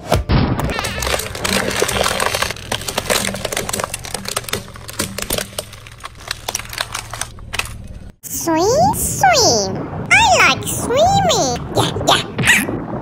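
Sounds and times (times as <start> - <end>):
plastic cracking under tyre: 0.6 - 7.8.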